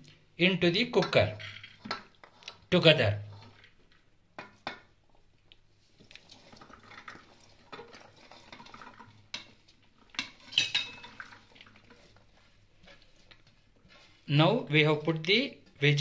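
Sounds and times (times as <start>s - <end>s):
scraping and rustling food: 1.4s - 4.0s, 5.7s - 15.8s.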